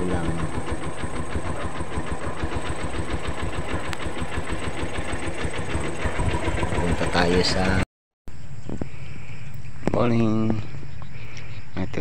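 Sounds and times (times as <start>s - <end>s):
small engine running: 0.0s - 7.8s.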